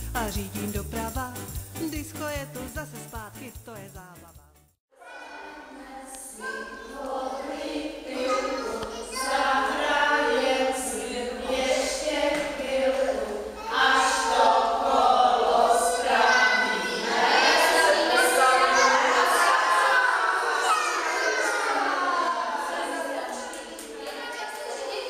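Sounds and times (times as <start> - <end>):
women singing unaccompanied: 5.1 - 20.0.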